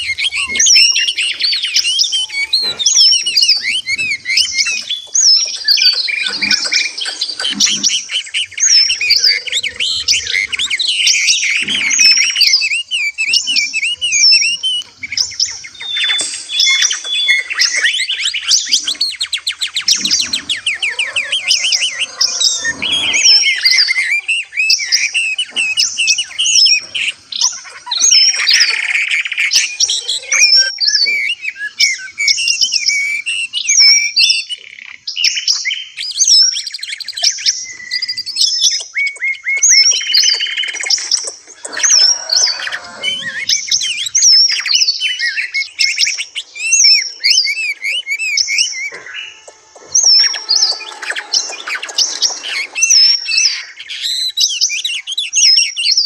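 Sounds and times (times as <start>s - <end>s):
fast rattling bird trill: 0.0s - 56.0s
songbirds chirping and singing: 0.0s - 56.0s.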